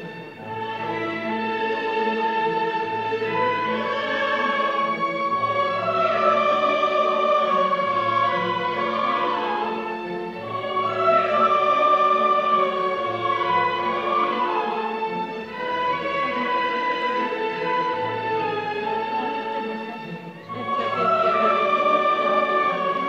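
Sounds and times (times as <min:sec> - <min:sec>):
chorus singing: 0:00.0 - 0:23.0.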